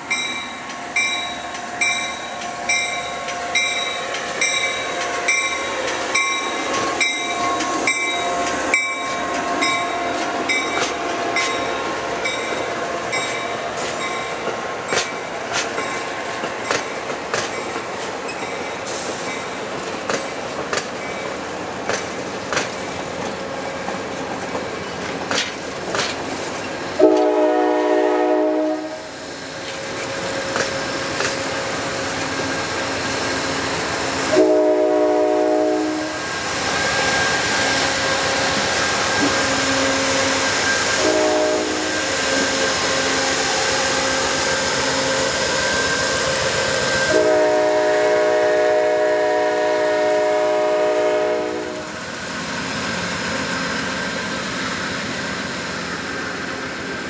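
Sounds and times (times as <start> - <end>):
train wheels clicking over rail joints: 0.0 - 27.4, 29.5 - 34.6, 36.4 - 47.8
diesel locomotive passing: 0.0 - 57.0
locomotive air horn: 27.0 - 29.1, 34.3 - 36.2, 39.5 - 42.6, 47.1 - 52.0.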